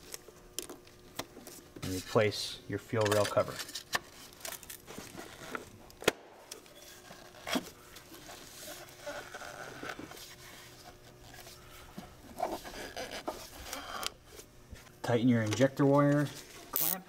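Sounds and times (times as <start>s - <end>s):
faint rubbing and scraping: 6.8s - 14.5s.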